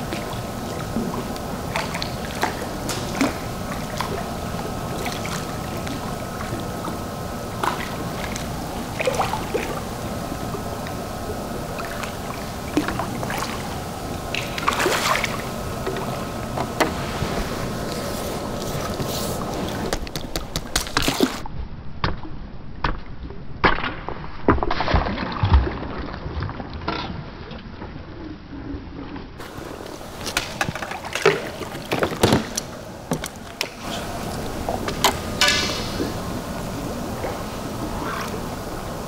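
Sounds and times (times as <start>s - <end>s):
churning water rushing: 0.0s - 21.4s, 29.4s - 39.0s
fish splashing and thrashing: 0.0s - 21.4s, 29.4s - 39.0s.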